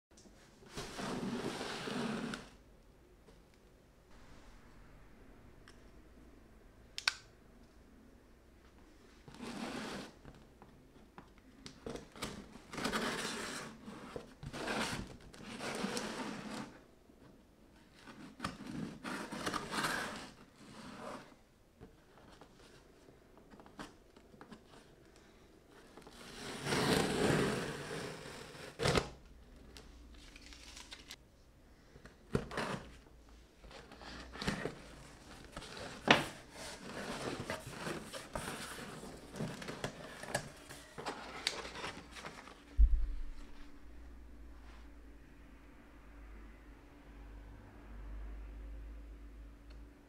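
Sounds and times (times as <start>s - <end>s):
packing paper rustling: 30.0s - 31.2s.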